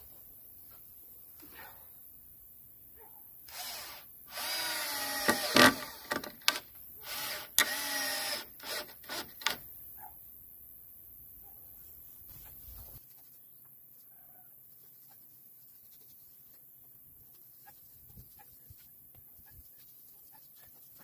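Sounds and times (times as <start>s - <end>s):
cordless drill whining into wood: 3.5s - 9.6s.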